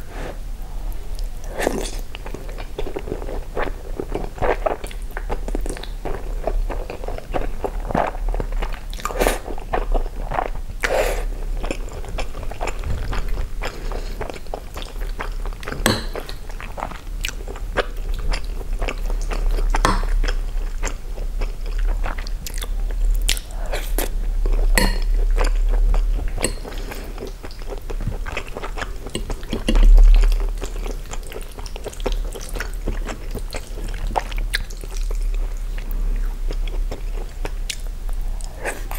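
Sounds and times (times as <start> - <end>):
low thump: 12.7 - 14.2
chewing with wet clicks: 14.2 - 38.9.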